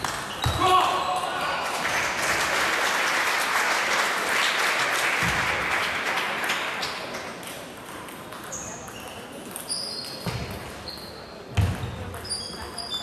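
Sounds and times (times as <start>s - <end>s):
spectators applauding: 1.1s - 7.2s.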